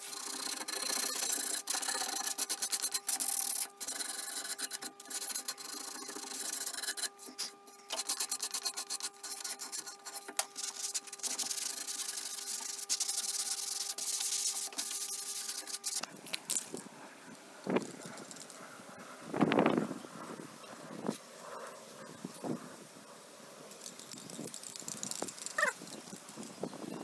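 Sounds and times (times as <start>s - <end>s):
sandpaper rubbing on wood: 0.0s - 16.1s
steady hum: 0.0s - 27.0s.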